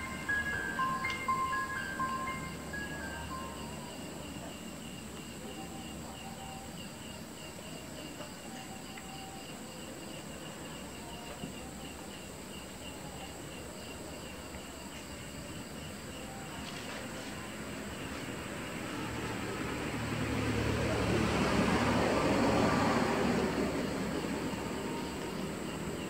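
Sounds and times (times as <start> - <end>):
high-pitched insect drone: 0.0 - 6.8
crickets chirping: 0.0 - 26.0.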